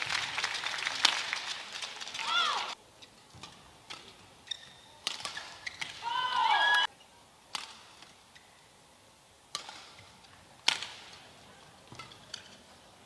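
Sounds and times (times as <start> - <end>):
badminton racket hitting shuttlecock: 3.3 - 6.9, 7.5 - 8.2, 9.5 - 11.1.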